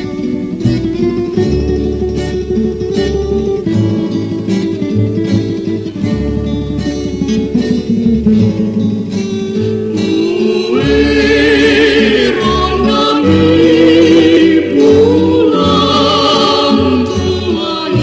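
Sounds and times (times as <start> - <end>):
bass: 0.0 - 18.0
guitar: 0.0 - 18.0
vocal group singing in harmony: 9.7 - 18.0.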